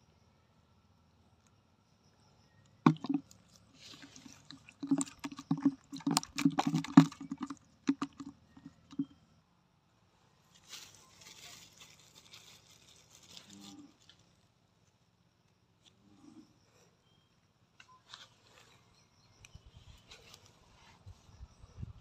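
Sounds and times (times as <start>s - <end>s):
fish flapping in plastic bucket: 2.8s - 3.3s, 3.9s - 9.1s.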